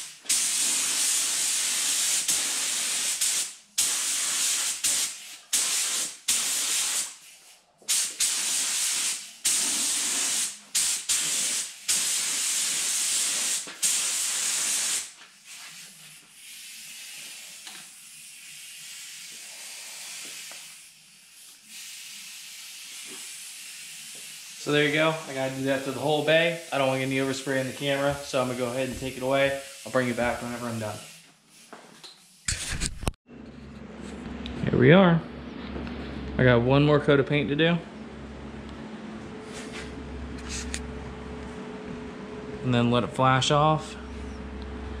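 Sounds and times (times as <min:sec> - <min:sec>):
paint spray gun hissing: 0:00.0 - 0:32.5.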